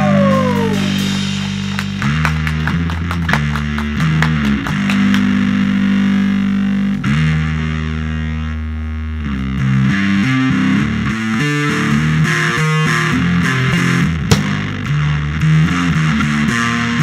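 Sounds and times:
distorted electric bass guitar: 0:00.0 - 0:17.0.

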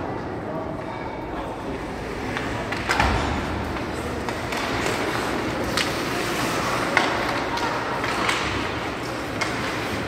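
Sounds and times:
skates scraping on ice: 0:03.6 - 0:10.0.

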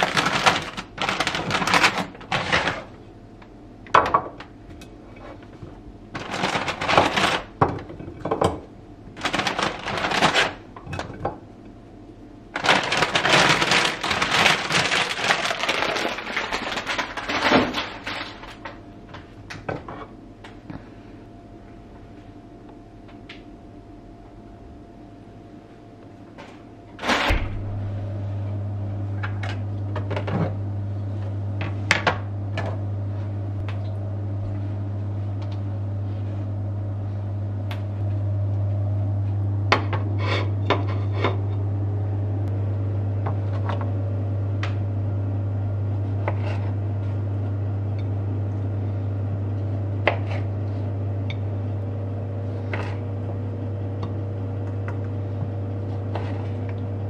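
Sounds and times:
microwave oven humming: 0:00.0 - 0:57.0
microwave high steady tone: 0:20.2 - 0:46.2.

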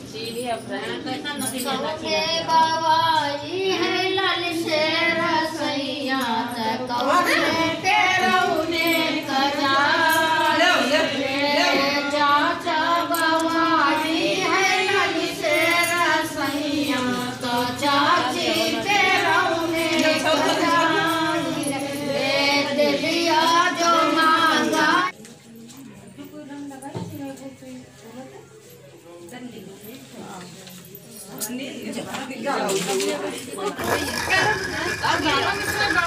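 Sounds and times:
women singing folk song: 0:01.6 - 0:25.1.

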